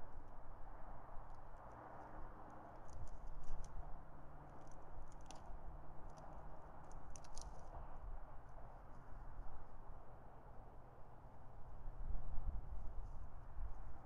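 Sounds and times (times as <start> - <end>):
dry sticks crackling: 4.4 - 7.8.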